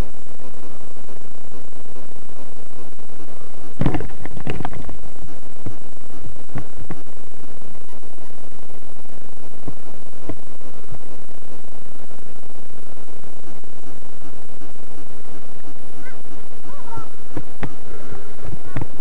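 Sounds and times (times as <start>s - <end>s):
microphone hiss: 0.0s - 19.0s.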